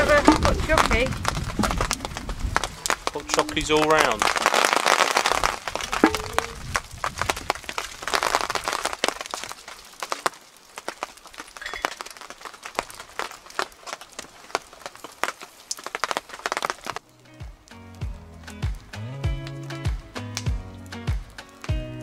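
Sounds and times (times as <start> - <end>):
footsteps: 0.0 - 17.6
campfire crackling and popping: 0.0 - 22.0.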